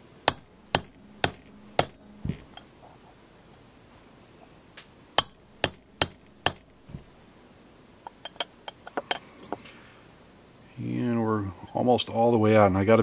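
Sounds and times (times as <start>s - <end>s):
hammer striking steel punch: 0.2s - 2.7s, 5.2s - 7.1s.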